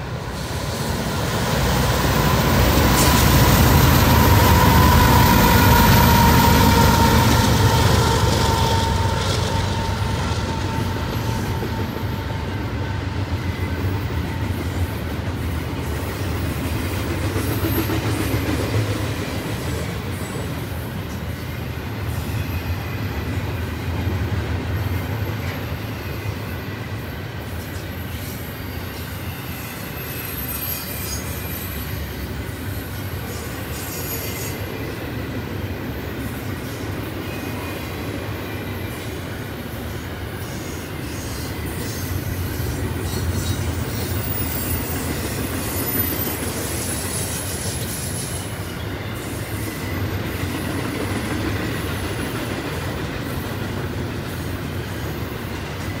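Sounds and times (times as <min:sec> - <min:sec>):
freight train wheels rumbling: 0:00.0 - 0:56.0
faint wheel squeal: 0:27.6 - 0:34.9.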